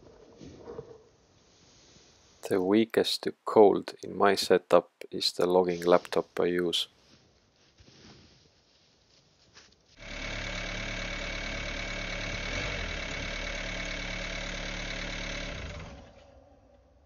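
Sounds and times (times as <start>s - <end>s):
vehicle engine idling: 10.0s - 16.2s.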